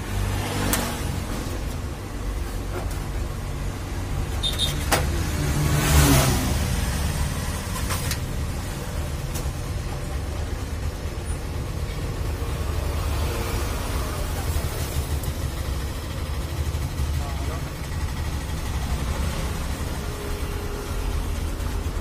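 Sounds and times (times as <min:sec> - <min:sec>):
road traffic rumble: 0:00.0 - 0:22.0
vehicle passing: 0:05.0 - 0:07.8.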